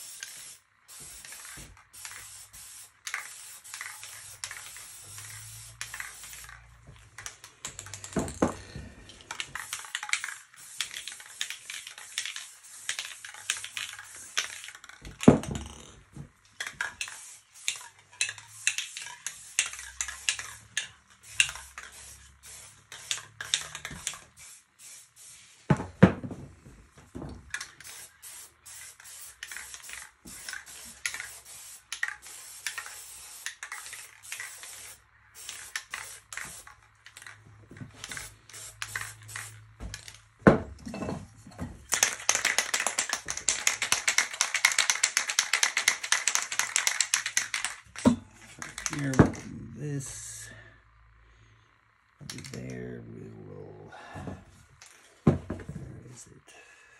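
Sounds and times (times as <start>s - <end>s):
spray paint can hissing: 0.0s - 8.1s, 9.3s - 15.9s, 16.6s - 25.6s, 27.5s - 40.2s, 41.9s - 49.2s.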